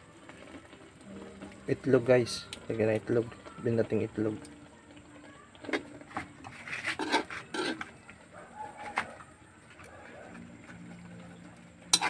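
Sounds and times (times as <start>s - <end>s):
metal spoon scraping a wok: 6.4s - 8.0s.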